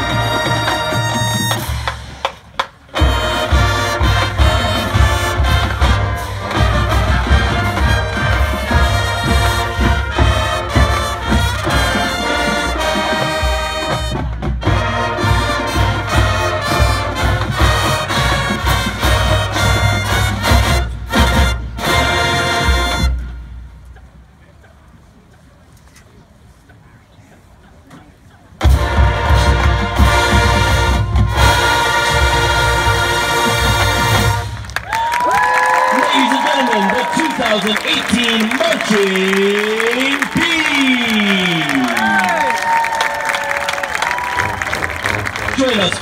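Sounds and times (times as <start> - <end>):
steady drum beat: 0.0 - 23.0
marching band brass: 0.0 - 23.9, 28.6 - 46.0.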